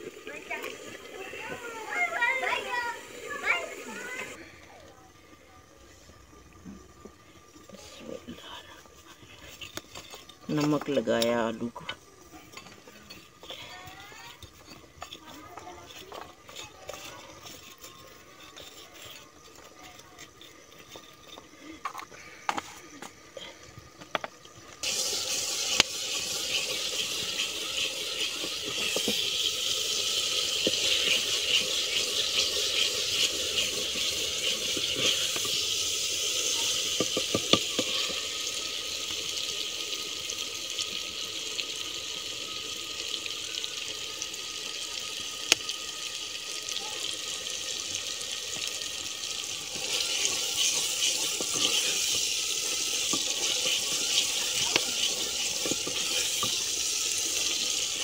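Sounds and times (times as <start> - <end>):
masala sizzling: 0.0 - 58.0
wooden spatula scraping: 12.4 - 22.1, 24.8 - 38.1, 49.7 - 57.8.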